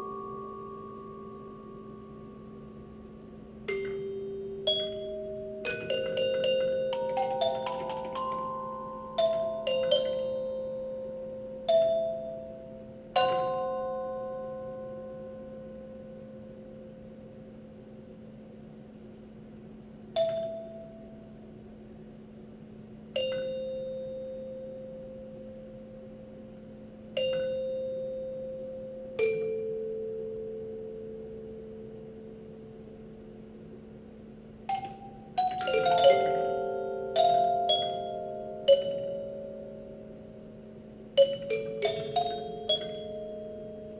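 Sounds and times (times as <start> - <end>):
robotic glockenspiel notes: 0.0 - 2.2, 3.7 - 15.5, 34.7 - 43.9.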